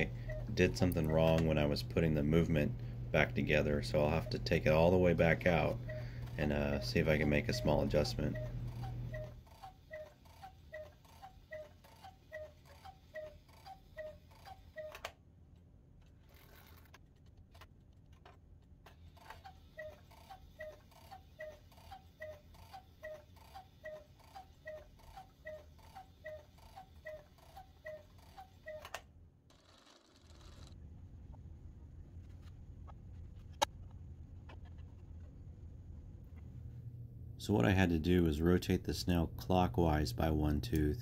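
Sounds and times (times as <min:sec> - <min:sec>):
clock ticking: 0:04.0 - 0:15.0, 0:19.8 - 0:28.8.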